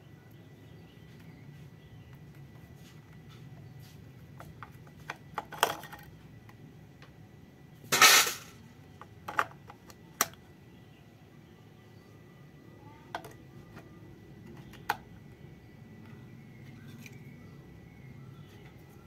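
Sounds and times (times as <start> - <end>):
plastic toy clicks and clatter: 4.7 - 6.1, 7.9 - 10.4.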